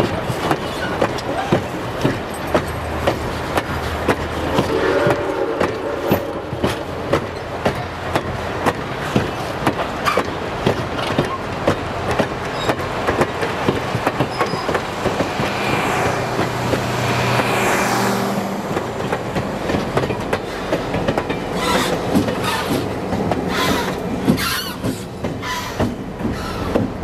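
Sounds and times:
train wheels clicking over rail joints: 0.0s - 27.0s
falling whoosh of passing train: 2.3s - 8.4s, 13.0s - 27.0s.

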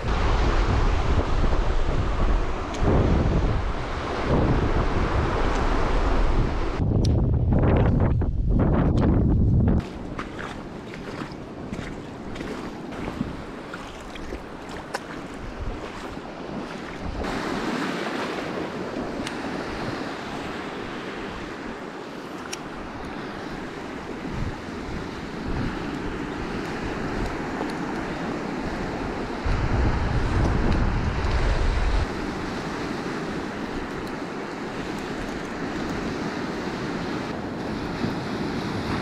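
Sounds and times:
wind buffeting microphone: 0.0s - 21.9s, 22.6s - 39.0s
waves washing over rocky shore: 10.0s - 39.0s.

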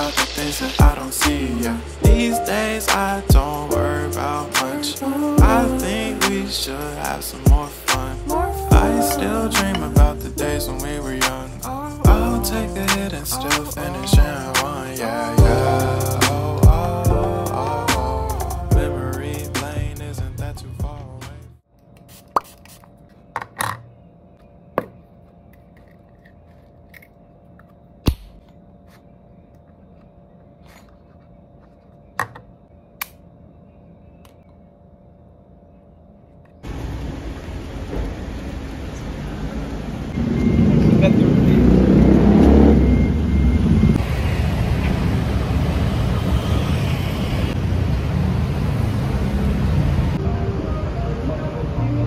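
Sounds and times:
noisy background haze: 0.0s - 20.2s
low traffic rumble: 0.0s - 21.6s, 36.7s - 52.0s
faint steady hum: 0.0s - 41.2s.

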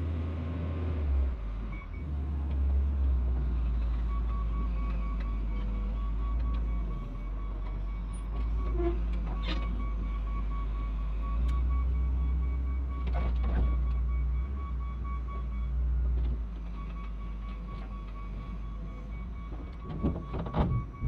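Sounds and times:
diesel loader engine running: 0.0s - 21.0s
backup alarm beeping: 4.0s - 15.8s, 16.6s - 21.0s.

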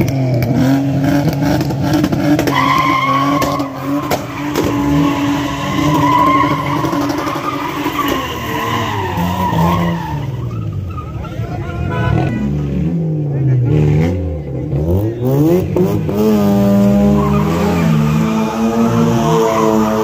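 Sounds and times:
car engine revving hard: 0.0s - 10.3s, 12.1s - 20.0s
tyres squealing: 2.4s - 11.6s.

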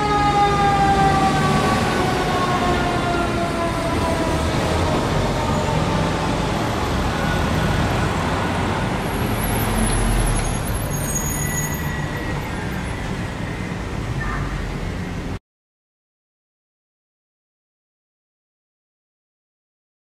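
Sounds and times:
siren winding down: 0.0s - 10.5s
truck engine rumbling past: 0.0s - 14.0s
street traffic: 0.0s - 15.4s.

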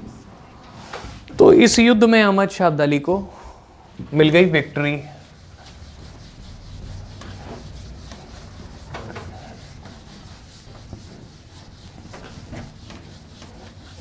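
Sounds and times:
eraser swishing on whiteboard: 4.6s - 14.0s.

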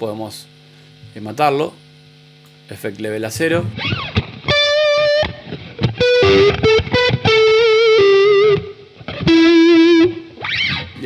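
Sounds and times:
electric guitar lead phrase: 3.3s - 11.0s.

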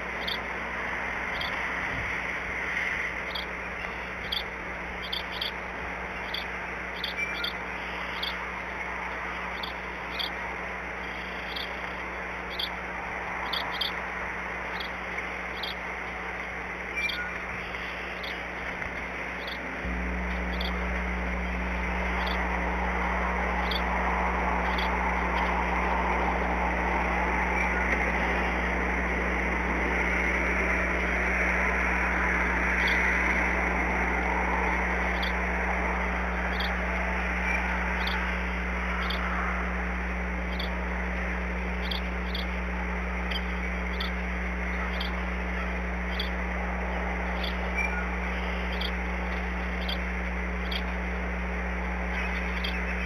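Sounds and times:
steady low hum: 0.0s - 53.0s
rain on branches: 8.4s - 48.3s.

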